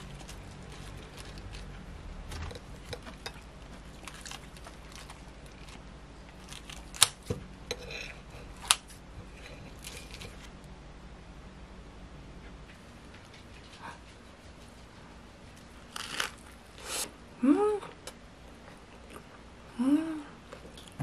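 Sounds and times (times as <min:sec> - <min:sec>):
tortilla wrap rustling: 0:00.0 - 0:07.2.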